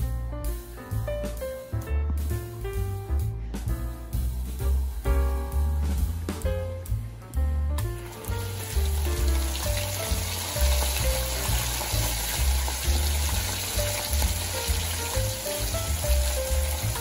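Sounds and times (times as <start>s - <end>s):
background music with bass: 0.0s - 17.0s
fish sizzling in hot oil: 8.0s - 17.0s.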